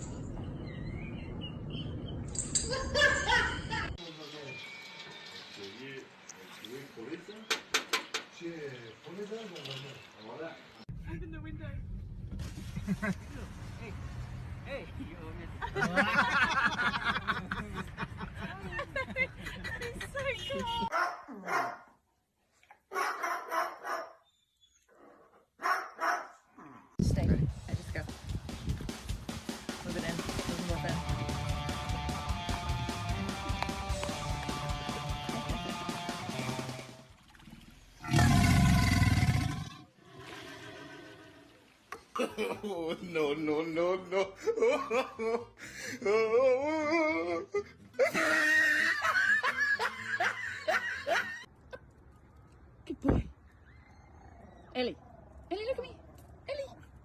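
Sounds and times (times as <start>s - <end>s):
dog barking: 20.9s - 21.9s, 22.9s - 24.2s, 25.6s - 26.5s
person laughing hard: 44.2s - 51.5s.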